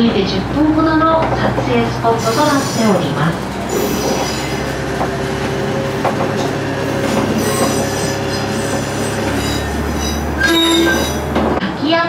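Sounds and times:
railcar engine and wheels rumbling: 0.0 - 12.0
high-pitched wheel squeal: 3.7 - 4.8, 7.0 - 11.3.

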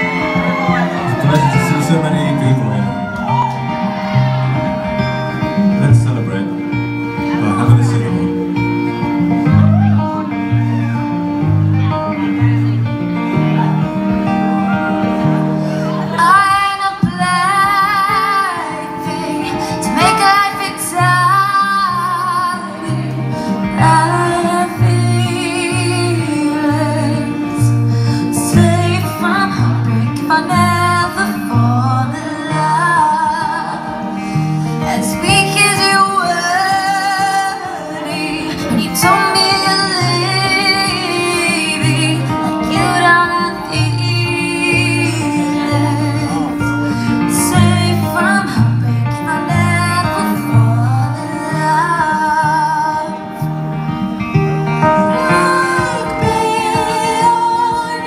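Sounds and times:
acoustic guitar: 0.0 - 58.0
woman singing: 15.9 - 53.6, 54.8 - 58.0.

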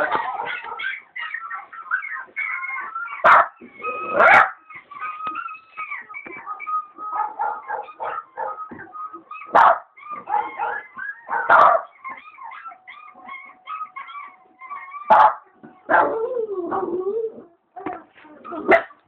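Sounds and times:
dog barking loudly: 0.0 - 1.1, 3.2 - 4.6, 6.4 - 8.7, 9.4 - 12.0, 15.1 - 16.2, 18.7 - 19.0
dog yipping and whining: 0.0 - 19.0.

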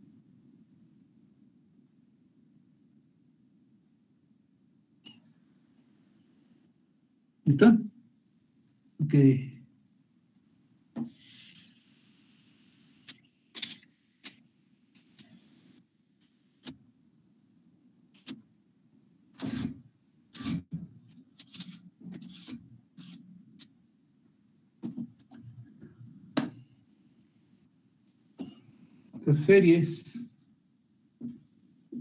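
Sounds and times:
eraser rubbing on whiteboard: 19.4 - 19.8, 20.4 - 23.2.

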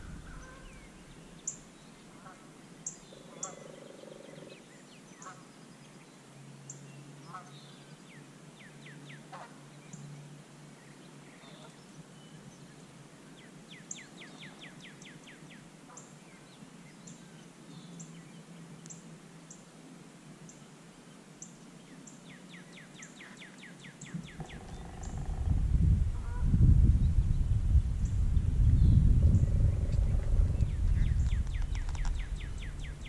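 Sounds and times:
low rumble: 24.2 - 33.0.

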